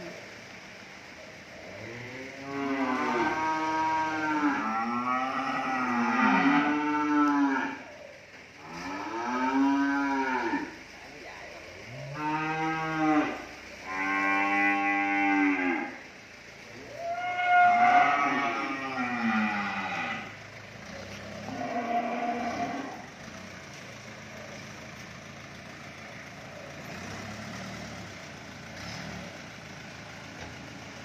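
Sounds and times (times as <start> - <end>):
cattle mooing: 1.8 - 8.0, 8.6 - 10.9, 11.8 - 16.1, 16.9 - 23.2.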